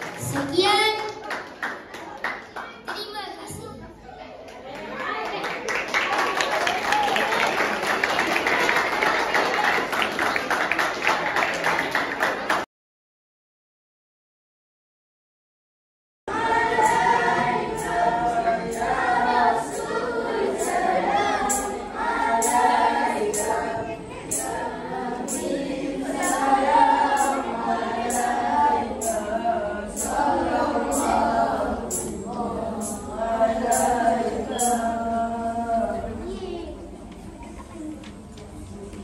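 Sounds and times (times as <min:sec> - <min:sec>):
children singing in chorus: 0:16.3 - 0:36.8
steady percussion beat: 0:16.5 - 0:19.9, 0:20.5 - 0:34.0.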